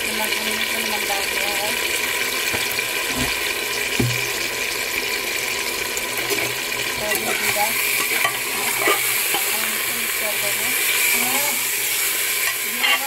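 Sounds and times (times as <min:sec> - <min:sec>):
meat sizzling in hot oil: 0:00.0 - 0:13.0
spoon scraping metal pot: 0:06.2 - 0:09.9, 0:10.7 - 0:13.0.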